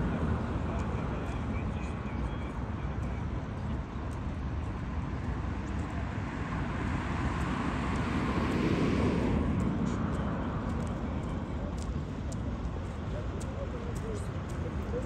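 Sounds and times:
passing vehicle rumble: 5.0 - 14.8.

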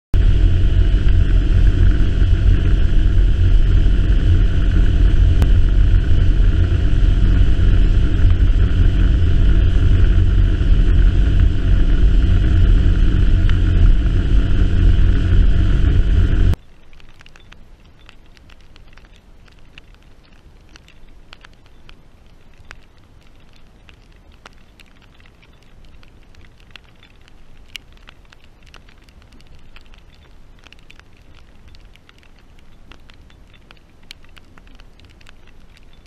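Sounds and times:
outboard motor running: 0.2 - 16.6.

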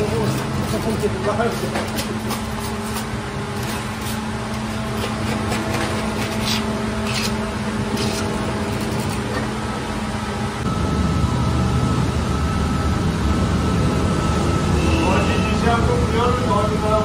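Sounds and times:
scraper scraping metal hopper: 0.0 - 9.5
dough machine humming: 0.0 - 11.7.

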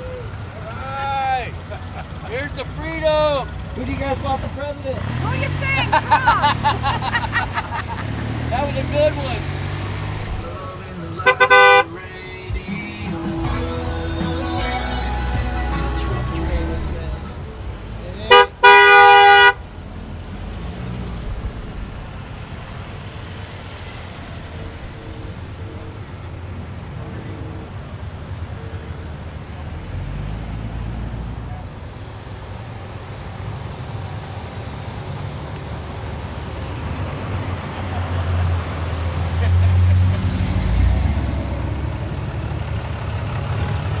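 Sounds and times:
cars driving slowly past: 0.0 - 44.0
deep car engine rumble: 0.0 - 44.0
faint car horn toots: 11.2 - 11.9, 18.3 - 19.6.

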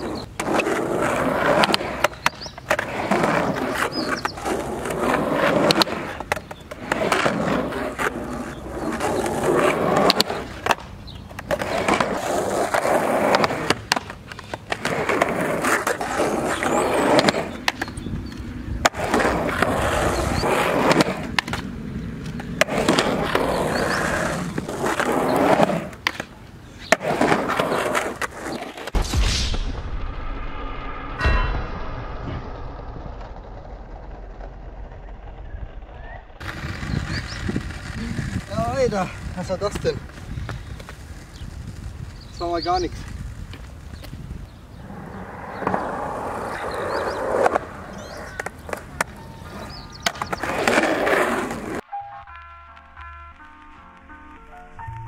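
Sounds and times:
skateboard rolling on concrete: 0.0 - 29.0, 33.0 - 55.0
skateboard clacking against ground: 3.7 - 28.9, 45.6 - 51.8.

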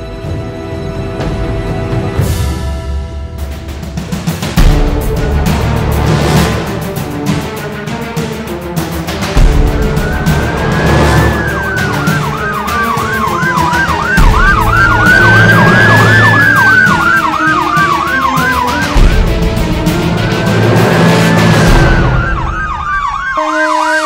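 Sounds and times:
background music: 0.0 - 24.0
emergency siren wail and yelp: 9.5 - 24.0.

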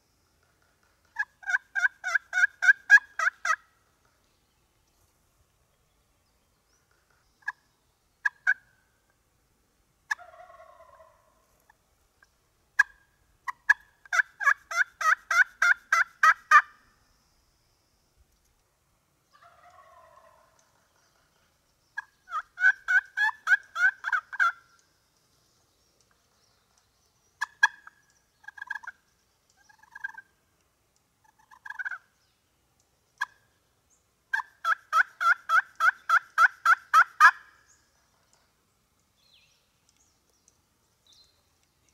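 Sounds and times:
turkeys yelping: 1.1 - 3.7, 8.2 - 8.7, 10.1 - 11.3, 12.8 - 16.8, 19.3 - 20.8, 22.0 - 24.6, 27.4 - 29.0, 29.6 - 30.3, 31.2 - 32.1, 33.2 - 33.4, 34.3 - 37.6.

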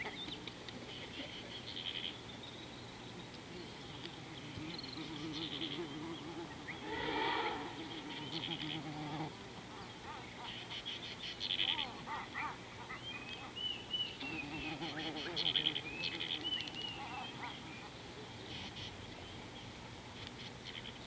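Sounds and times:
birds trilling: 0.0 - 19.8
low wavering animal call: 3.5 - 9.4.

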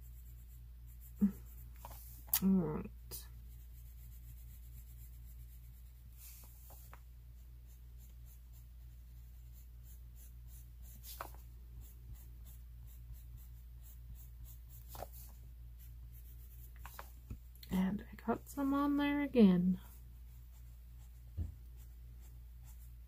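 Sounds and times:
pencil scratching on paper: 0.0 - 2.3, 3.1 - 17.1, 19.8 - 23.0
steady low hum: 0.0 - 23.0.

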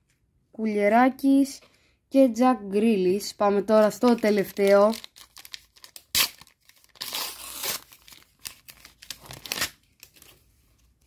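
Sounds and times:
wrapper crinkling: 3.8 - 10.4
card packet tearing: 4.0 - 10.3.

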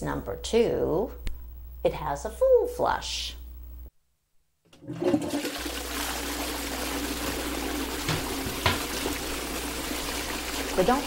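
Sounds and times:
toilet flushing: 4.8 - 11.0
short knocks: 8.0 - 8.9.

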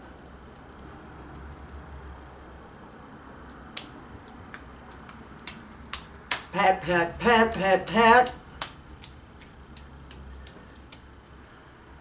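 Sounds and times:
low room hum: 0.0 - 12.0
fingertips tapping skin: 4.5 - 11.1.

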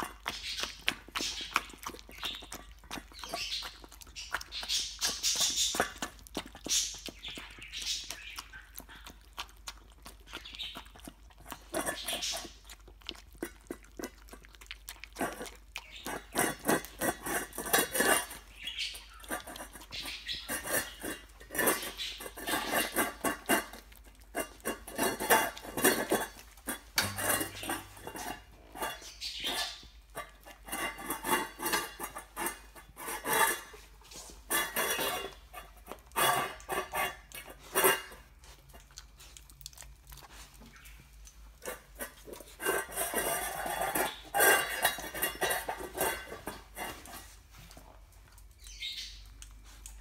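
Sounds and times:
dog licking bowl: 0.0 - 47.5
metal bowl clanking on tile: 15.2 - 33.8, 34.5 - 38.3, 41.6 - 47.3.

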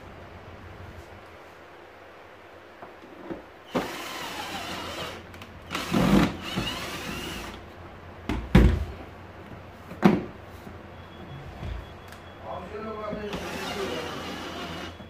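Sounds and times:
electric screwdriver motor whirring: 3.7 - 7.6.

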